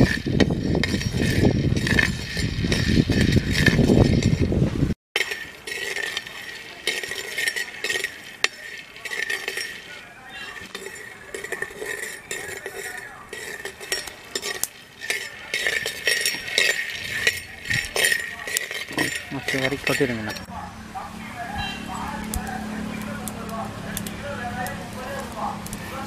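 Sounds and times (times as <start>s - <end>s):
ladle scraping pot: 0.0s - 4.5s, 5.2s - 20.5s
peanuts rattling in clay pot: 0.0s - 4.5s, 5.2s - 20.5s.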